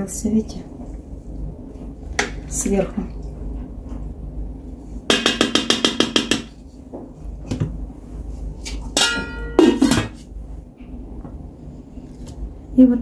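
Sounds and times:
spatula knocking on steel pot: 5.1s - 6.6s, 9.0s - 10.1s
metal lid clanging on pot: 9.0s - 10.2s.

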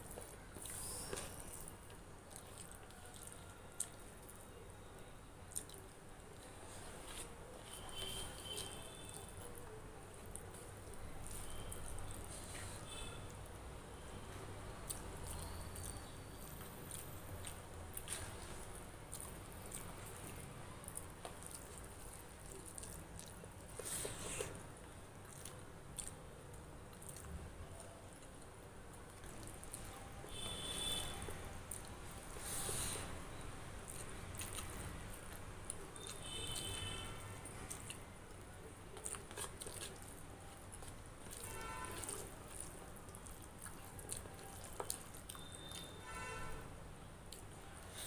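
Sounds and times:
chewing with mouth clicks: 0.0s - 4.6s, 5.5s - 13.3s, 14.8s - 46.0s, 47.3s - 48.0s
fingers squishing soft rice: 25.3s - 46.0s
wet bite: 38.9s - 46.0s.

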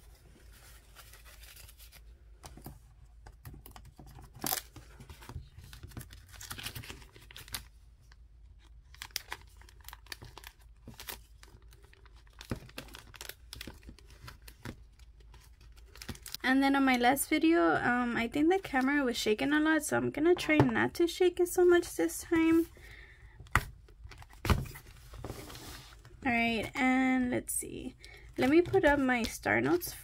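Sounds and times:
banknotes rustling: 0.0s - 2.8s, 28.0s - 30.0s
plastic envelope crinkling: 4.1s - 16.4s.

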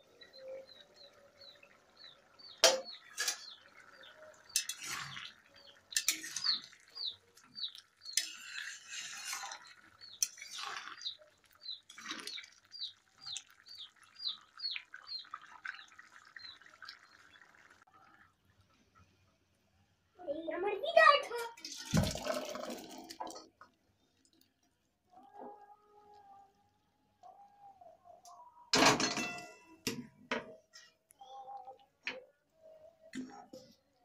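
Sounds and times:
bird chirping: 0.0s - 8.2s, 9.6s - 18.1s
metal spatula scraping a pan: 2.7s - 3.6s, 4.5s - 11.2s.

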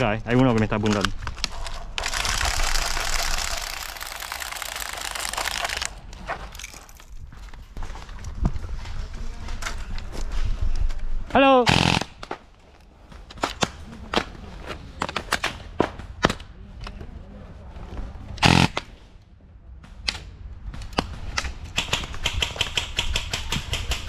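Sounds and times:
bbs hitting wood and tarp: 0.6s - 7.3s
airsoft rifle burst: 2.0s - 7.1s, 11.7s - 12.1s, 18.4s - 18.9s.

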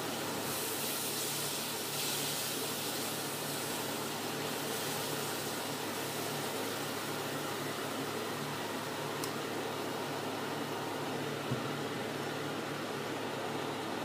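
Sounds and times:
shrimp sizzling in a frying pan: 0.0s - 9.0s.

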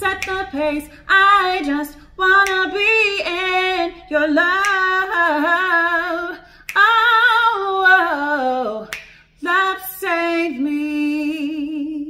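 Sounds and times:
woman singing with vibrato: 0.0s - 12.0s
woman breathing: 0.8s - 1.1s.

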